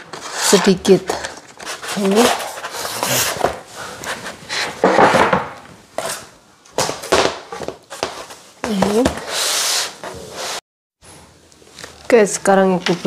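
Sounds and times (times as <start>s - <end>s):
panels sliding and scraping: 0.0s - 5.4s, 8.2s - 11.2s.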